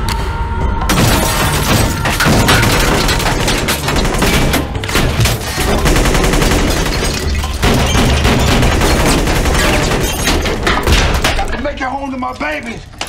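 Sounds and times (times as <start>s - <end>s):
automatic gunfire: 7.6s - 10.1s.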